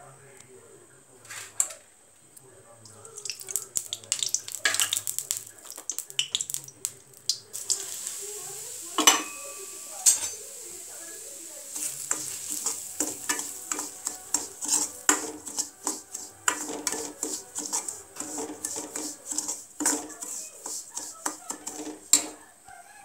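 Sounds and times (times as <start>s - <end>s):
metal spoon scraping a metal pan: 9.0s - 10.6s, 11.7s - 22.4s.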